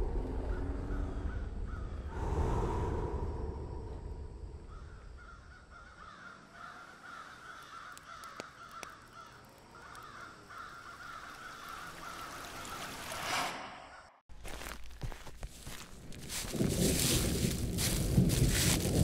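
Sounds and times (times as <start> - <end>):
birds calling: 4.6 - 14.2.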